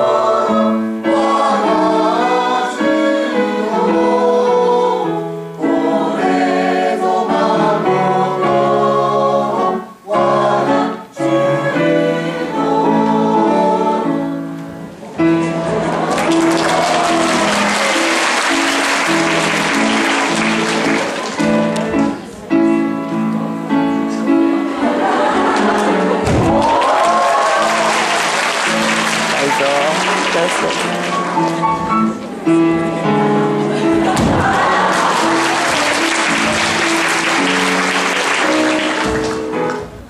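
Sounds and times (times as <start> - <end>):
choir singing: 0.0 - 22.2, 23.2 - 30.4, 31.2 - 39.8
instrumental accompaniment: 0.0 - 40.0
applause: 16.0 - 21.6, 26.6 - 31.6, 34.5 - 39.8.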